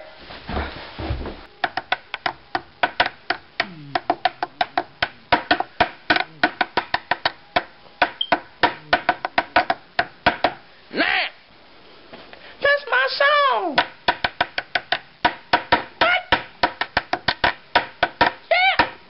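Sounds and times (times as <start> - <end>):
sharp dry percussive clicks: 13.8 - 19.0.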